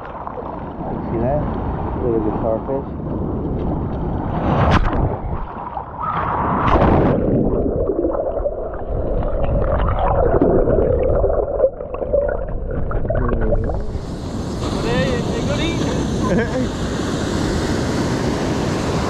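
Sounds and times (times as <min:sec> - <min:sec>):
muffled underwater gurgling water: 0:07.2 - 0:14.4.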